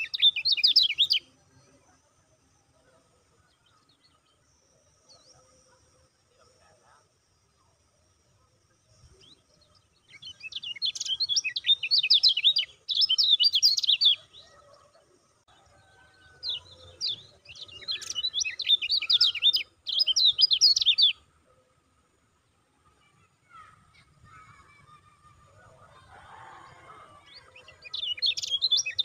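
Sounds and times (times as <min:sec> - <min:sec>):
bird chattering song: 0:00.0 - 0:01.4, 0:09.0 - 0:15.1, 0:16.4 - 0:21.3, 0:27.2 - 0:29.0.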